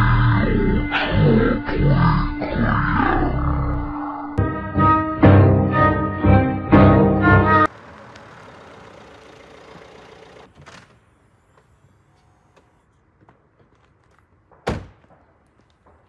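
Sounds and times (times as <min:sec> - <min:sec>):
car rolling over gravel: 0:07.7 - 0:10.6.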